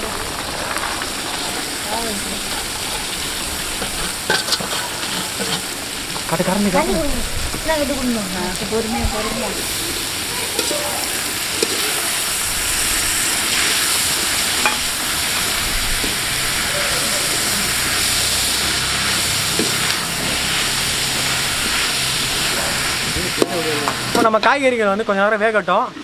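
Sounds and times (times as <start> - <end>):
vegetables sizzling in hot oil: 0.0 - 25.7
metal spatula scraping pan: 2.4 - 5.8.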